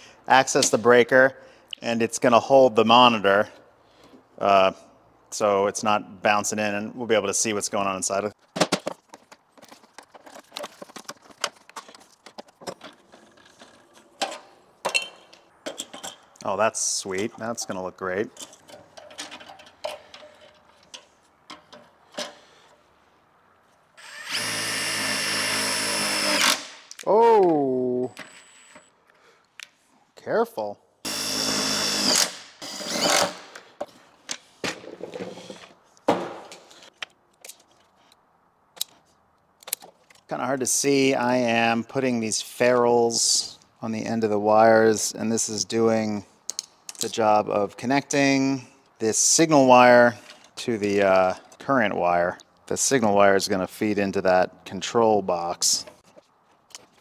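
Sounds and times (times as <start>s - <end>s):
metal panel and tools clattering: 8.5s - 16.4s, 18.3s - 22.5s
cordless driver running a screw: 24.0s - 26.6s, 31.1s - 33.4s.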